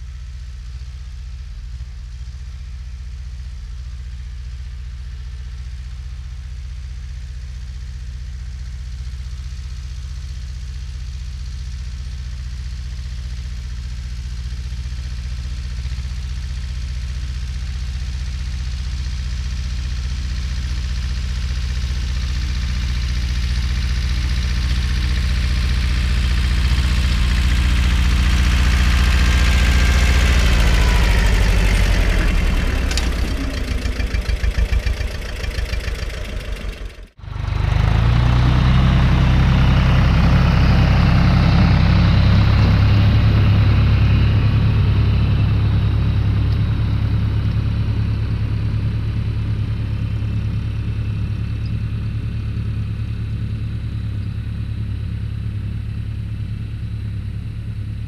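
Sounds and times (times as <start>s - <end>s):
tractor engine driving past: 12.4s - 58.0s.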